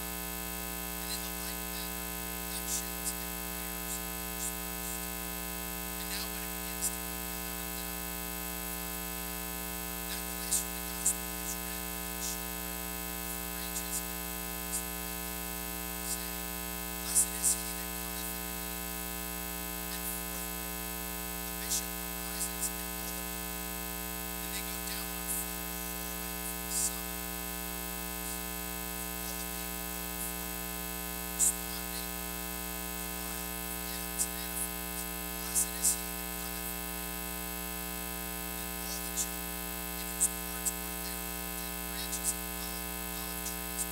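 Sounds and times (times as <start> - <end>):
electrical mains hum: 0.0 - 43.9.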